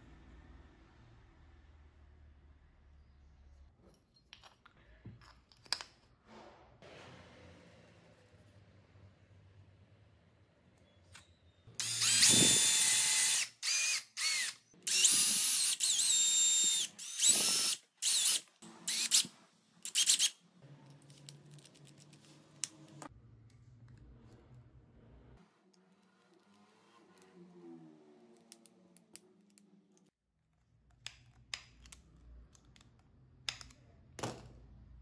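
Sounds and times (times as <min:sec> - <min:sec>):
cordless drill whining: 0:11.8 - 0:20.3.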